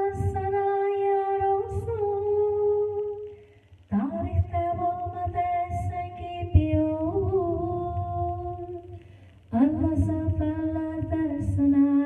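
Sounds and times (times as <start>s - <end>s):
woman singing into a microphone: 0.0s - 12.0s.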